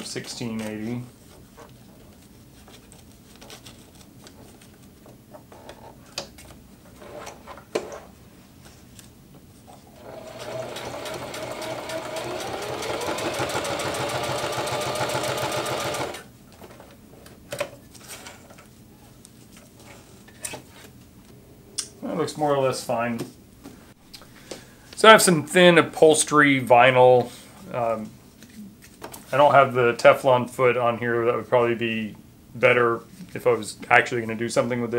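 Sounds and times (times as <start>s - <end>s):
sewing machine stitching: 9.9s - 16.3s.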